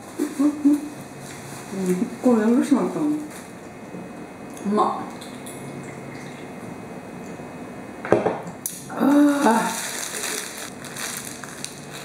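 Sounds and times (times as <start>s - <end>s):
person humming: 0.2s - 0.9s, 8.9s - 10.5s
drink can knocking on table: 8.1s - 8.4s
paper wrapper crinkling: 9.1s - 12.0s.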